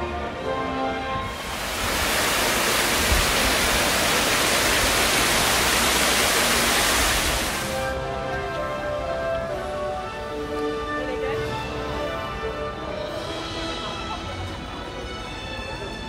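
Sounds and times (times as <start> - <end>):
background music: 0.0 - 2.4, 7.6 - 16.0
water splashing into fountain pool: 1.3 - 8.0.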